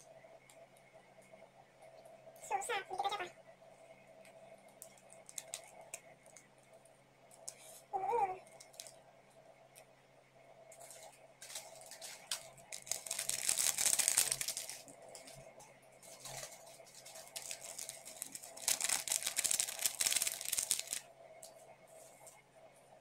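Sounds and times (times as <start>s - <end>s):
plastic sachets crinkling and tearing: 5.2s - 5.7s, 8.6s - 8.9s, 10.8s - 15.3s, 16.1s - 21.1s.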